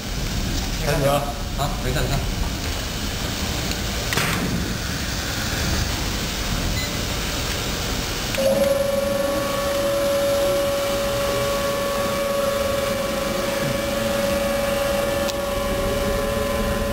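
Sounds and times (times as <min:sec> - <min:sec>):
laminator mechanical hiss and rumble: 0:00.0 - 0:16.9
steady high-pitched tone: 0:08.3 - 0:16.9.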